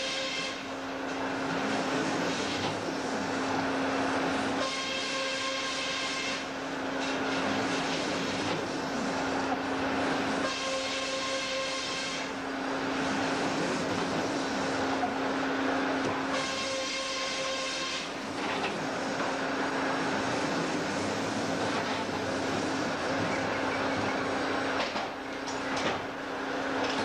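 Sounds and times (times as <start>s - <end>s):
sawmill engine and saw hum: 0.0s - 27.0s.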